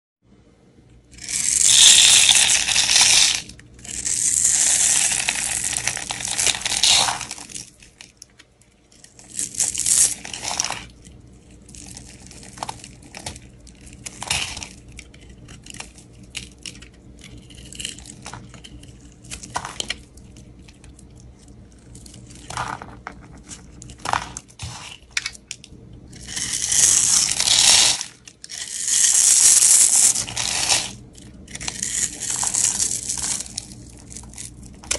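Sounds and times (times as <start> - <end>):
faint low hum: 0.2 - 34.9
knife shaving dry soap: 1.2 - 22.5.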